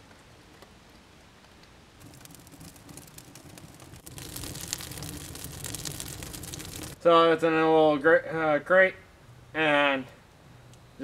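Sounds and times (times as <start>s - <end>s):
campfire crackling: 0.0s - 7.1s.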